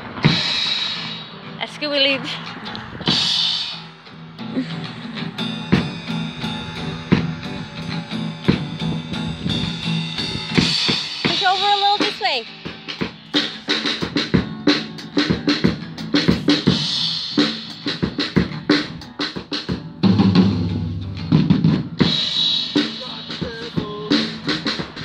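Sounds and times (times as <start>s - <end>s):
rock drum kit playing: 0.0s - 25.0s
strummed guitar: 0.0s - 25.0s
cymbal crash: 20.1s - 23.6s.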